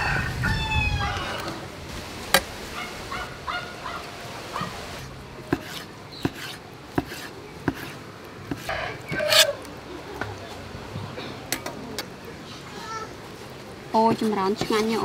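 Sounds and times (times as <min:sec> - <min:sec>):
chickens calling: 0:02.7 - 0:05.0.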